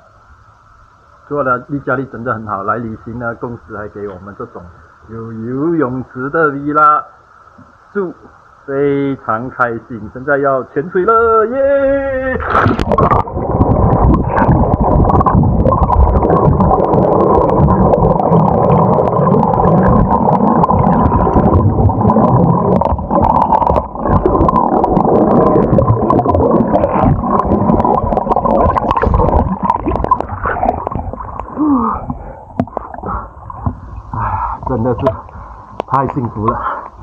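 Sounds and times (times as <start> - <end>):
small underwater clicks: 12.4 - 34.2, 35.0 - 37.0
underwater rumbling and bubbling: 12.4 - 37.0.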